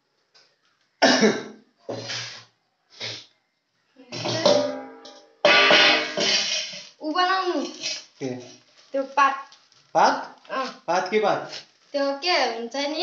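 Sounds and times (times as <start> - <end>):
music with drums and cymbals: 4.2 - 7.0.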